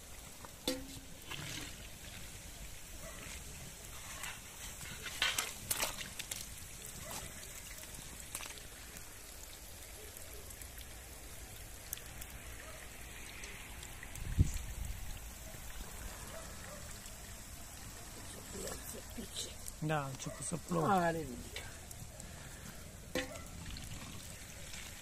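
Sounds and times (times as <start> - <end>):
soft steady hiss: 0.0 - 25.0
metal skimmer scraping iron pot: 0.6 - 2.4, 3.2 - 6.4, 23.0 - 24.9.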